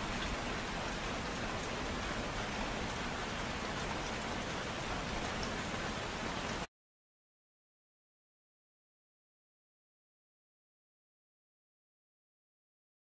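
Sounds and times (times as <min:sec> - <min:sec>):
gentle rain: 0:00.0 - 0:06.7
raindrops ticking: 0:00.0 - 0:06.7.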